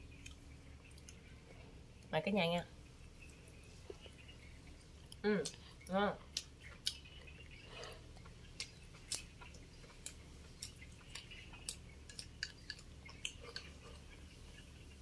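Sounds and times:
person chewing food: 0.1s - 1.4s, 5.0s - 15.0s.

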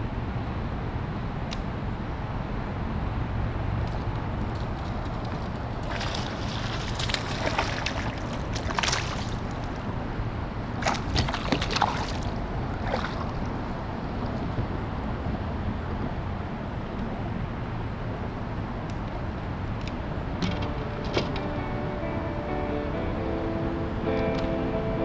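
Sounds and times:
fish splashing at water surface: 4.6s - 10.0s, 10.8s - 13.8s.

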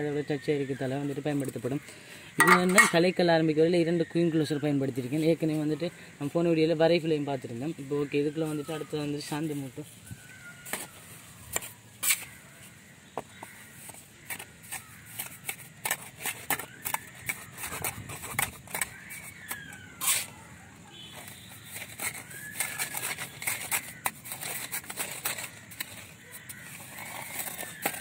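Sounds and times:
trowel knocks: 2.4s - 3.0s
steel trowel scraping on bricks: 2.4s - 3.2s, 10.7s - 12.5s, 14.2s - 20.5s, 21.2s - 28.0s.

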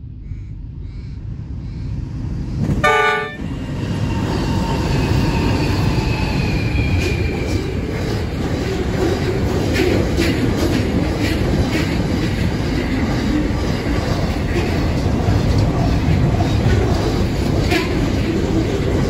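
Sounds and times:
diesel locomotives rumbling: 0.0s - 19.0s
train horn blast: 2.8s - 3.6s
freight wagons rumbling: 6.5s - 19.0s.

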